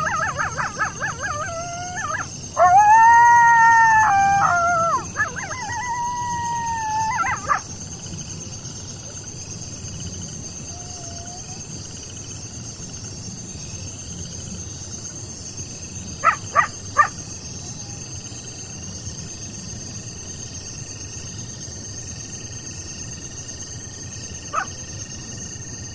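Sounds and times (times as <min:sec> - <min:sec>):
coyote yips: 0:00.0 - 0:07.6, 0:16.2 - 0:18.0, 0:24.5 - 0:24.7
coyote howl: 0:00.0 - 0:07.8, 0:10.7 - 0:11.6, 0:16.2 - 0:18.0, 0:24.5 - 0:24.8
crickets trilling: 0:00.0 - 0:25.9.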